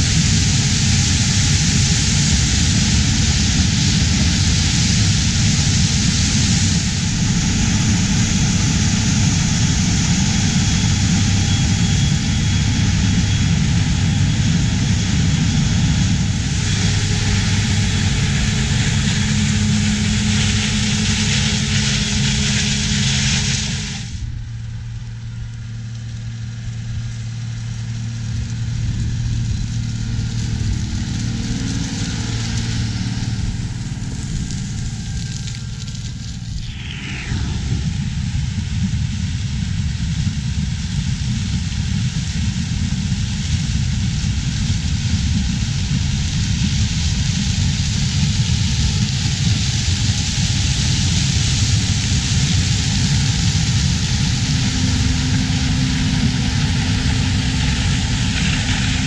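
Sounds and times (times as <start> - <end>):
tractor engine hum: 0.0 - 40.7, 42.5 - 59.0
combine harvester machinery: 0.0 - 59.0.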